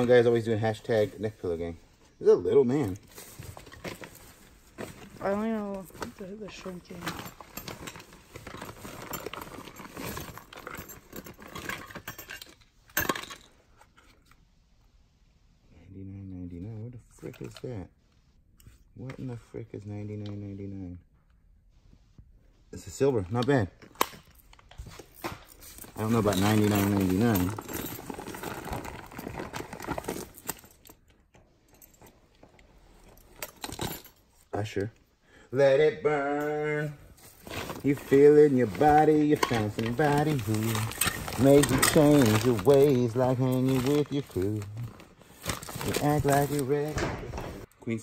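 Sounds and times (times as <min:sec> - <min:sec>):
rummaging through clothes and bags: 0:00.0 - 0:14.4, 0:23.3 - 0:34.8, 0:36.2 - 0:47.8.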